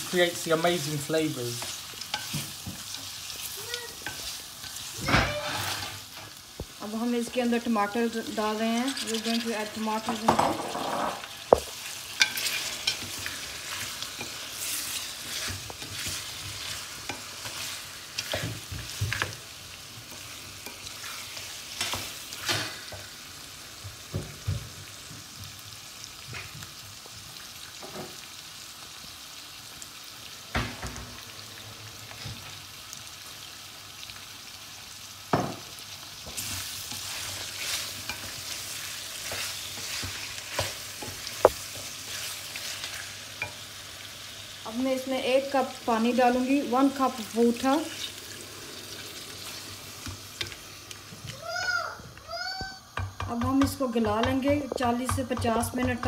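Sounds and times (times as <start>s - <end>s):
meat sizzling in a pan: 0.0s - 56.0s
wooden spoon knocking pan: 53.0s - 56.0s.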